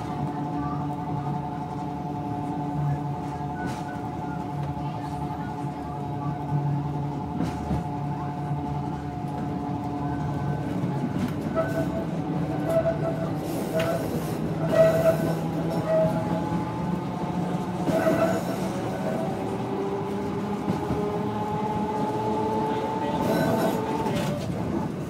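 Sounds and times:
tram motor hum and running noise: 0:00.0 - 0:25.0
tram wheel squeal: 0:02.8 - 0:04.7, 0:09.9 - 0:19.3, 0:23.0 - 0:24.5.

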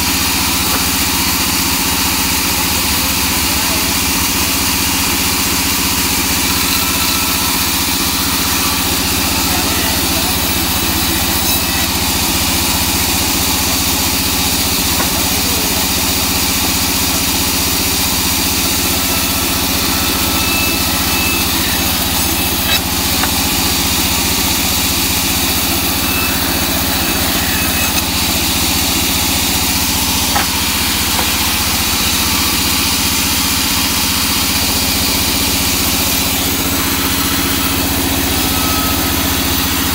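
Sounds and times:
band saw cutting wood: 0:00.0 - 0:39.9
small knocks: 0:30.2 - 0:31.6.

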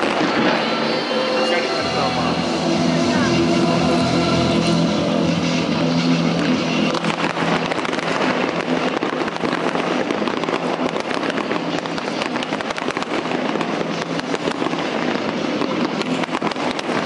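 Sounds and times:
fireworks crackling and popping: 0:00.0 - 0:17.0.

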